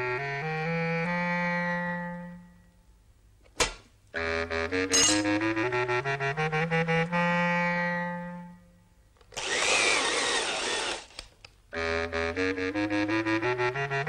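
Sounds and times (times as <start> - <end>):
electric drill running: 9.3 - 11.3.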